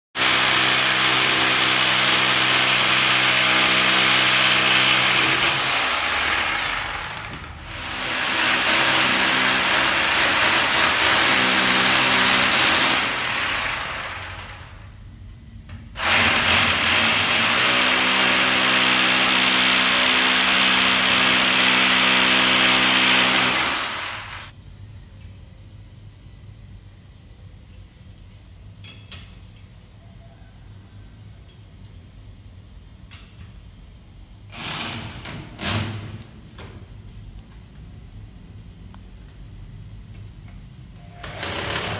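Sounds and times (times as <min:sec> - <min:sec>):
electric drill boring into wall: 0:00.2 - 0:14.8, 0:16.0 - 0:24.5, 0:34.5 - 0:35.9, 0:41.1 - 0:41.9.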